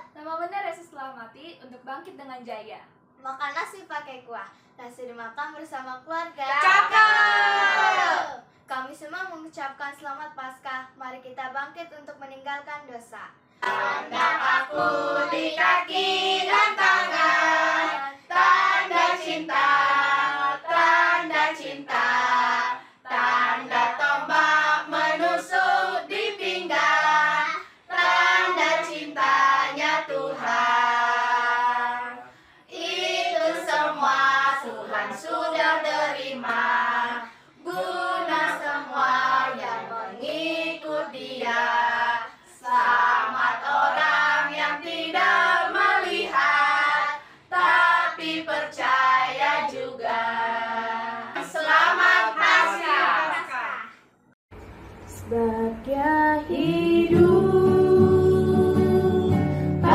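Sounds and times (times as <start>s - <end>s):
children singing: 13.6s - 53.6s, 57.1s - 59.9s.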